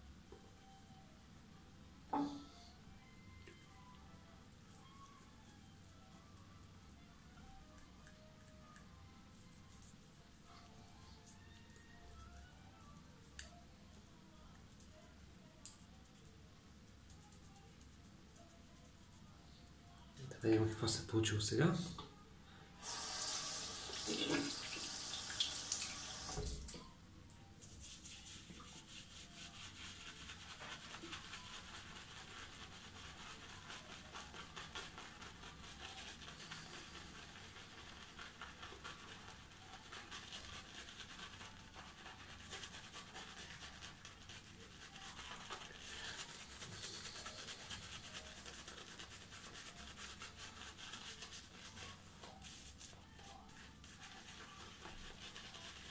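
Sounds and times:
shaving brush swishing on beard: 27.6 - 55.9.

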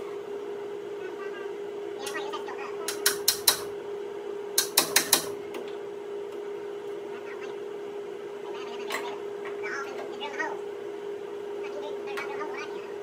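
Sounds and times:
steady hum: 0.0 - 13.0
hammer tapping on steel: 2.9 - 3.7, 4.6 - 5.4.

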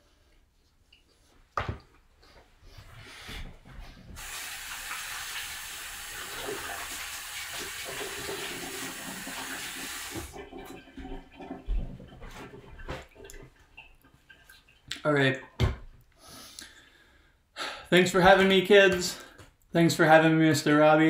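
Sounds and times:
tap water running into sink: 4.2 - 14.8.

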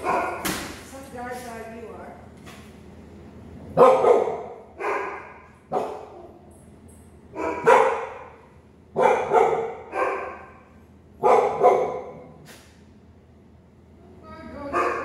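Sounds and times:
dog barking: 0.0 - 0.5, 3.8 - 6.3, 7.3 - 12.4, 14.7 - 15.0.

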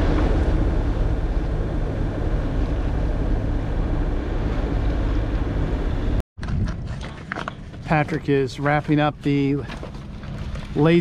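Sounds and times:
boat engine drone: 0.0 - 6.2
water rushing past hull: 0.0 - 6.2
wind buffeting microphone: 0.0 - 11.0.

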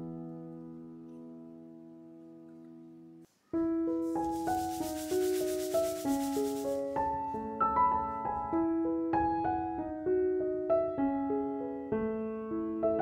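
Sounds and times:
piano music: 0.0 - 13.0
scratchy rubbing noise: 3.3 - 7.1.

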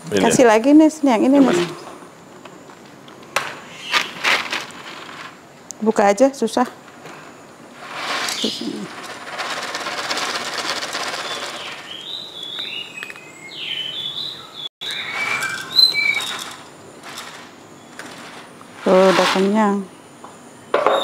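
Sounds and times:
food packet crinkling: 3.9 - 5.4, 8.0 - 12.0
high chirps and squeaks: 8.2 - 9.0, 11.0 - 19.9.

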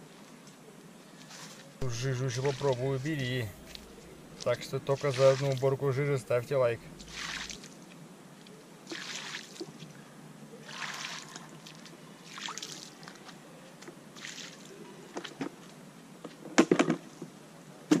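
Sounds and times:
water sloshing in bucket: 1.3 - 7.9, 8.9 - 9.9, 10.6 - 13.4.

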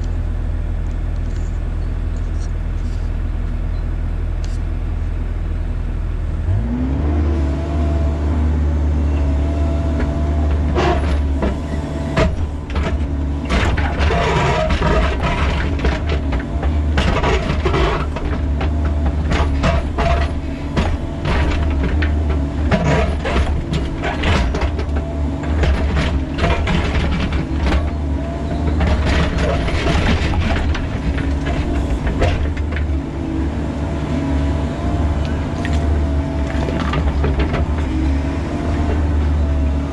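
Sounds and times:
excavator diesel engine: 0.0 - 39.9
hydraulic whine: 9.0 - 33.3
bucket scraping rock: 10.6 - 28.0, 28.6 - 33.0.

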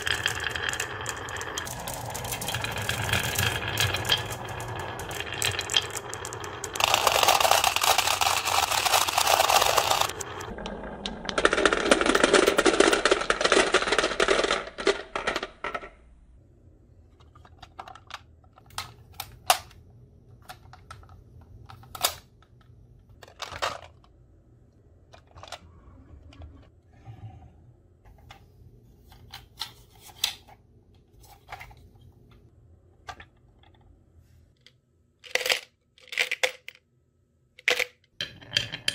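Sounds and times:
marbles rattling down wooden slope: 0.0 - 15.9
marble clicks and knocks: 0.0 - 16.2.

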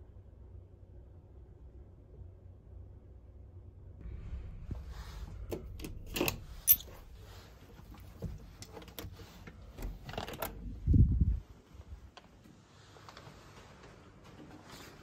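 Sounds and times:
room key clicking and jangling: 5.8 - 7.2.

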